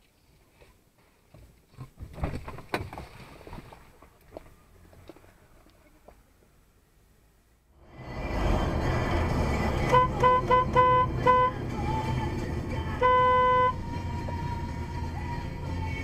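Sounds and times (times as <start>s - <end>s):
road noise from driving car: 4.4s - 16.0s
car horn toots and blast: 9.8s - 11.8s, 12.8s - 13.9s.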